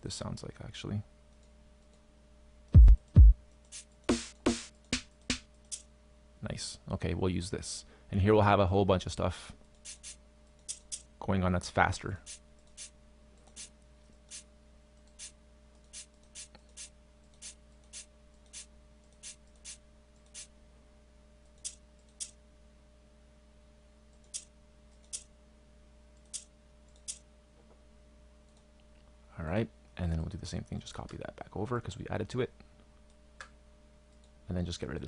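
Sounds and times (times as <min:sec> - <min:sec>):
faint electrical hum: 0:00.0 - 0:35.0
computer mouse clicking: 0:09.7 - 0:11.1, 0:24.2 - 0:25.3, 0:26.2 - 0:27.2.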